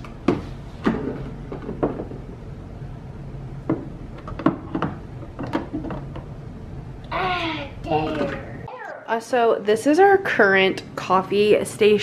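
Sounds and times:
cupboards and dishes knocking: 0.2s - 2.3s, 3.7s - 6.2s.

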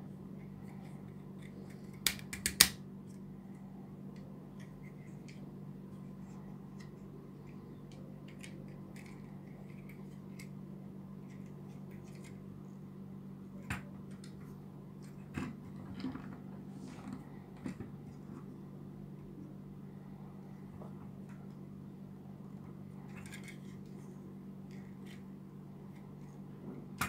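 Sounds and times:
steady low hum: 0.0s - 27.0s
plastic snaps: 2.0s - 2.8s.

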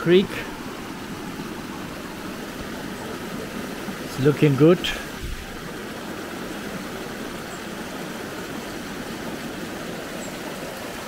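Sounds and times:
water rushing over rocks: 0.0s - 11.0s.

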